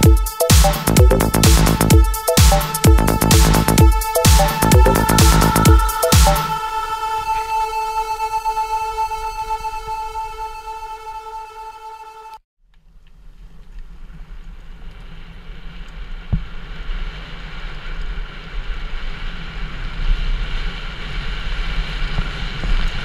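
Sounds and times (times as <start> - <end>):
bike tyres rumbling on dirt: 13.5 - 23.0.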